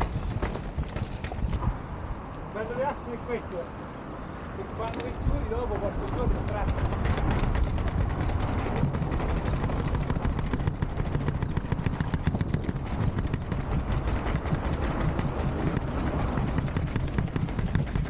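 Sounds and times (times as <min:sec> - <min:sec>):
bike tyres knocking down steps: 0:00.0 - 0:01.7, 0:05.4 - 0:18.0.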